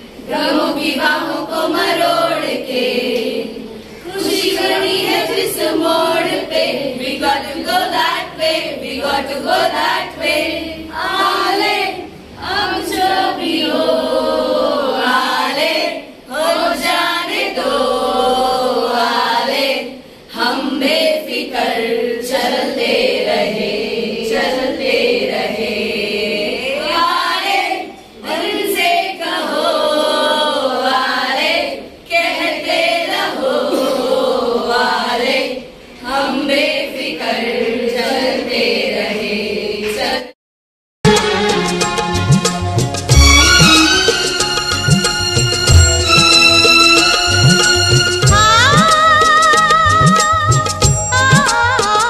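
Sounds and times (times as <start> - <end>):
women's choir singing: 0.0 - 40.4.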